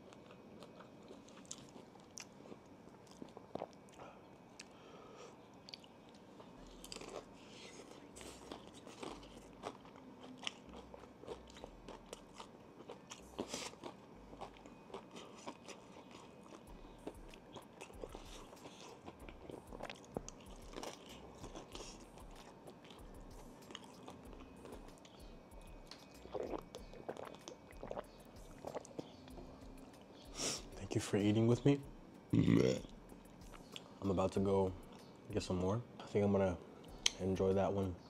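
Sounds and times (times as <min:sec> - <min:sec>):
crunching and chewing fried food: 0:00.0 - 0:35.1
gulps of drinking: 0:32.3 - 0:32.9.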